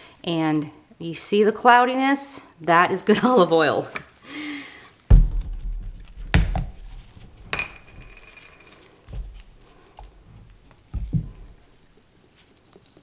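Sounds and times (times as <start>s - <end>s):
heavy thump: 5.1s - 6.8s.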